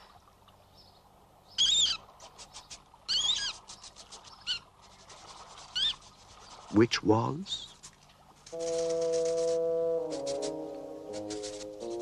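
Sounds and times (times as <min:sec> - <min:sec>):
rat squeaking: 0:02.6 - 0:03.8, 0:05.7 - 0:06.1.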